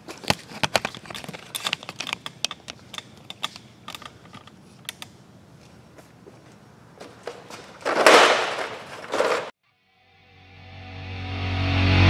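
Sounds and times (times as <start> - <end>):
tools and plastic trays clicking: 0.0 - 5.2.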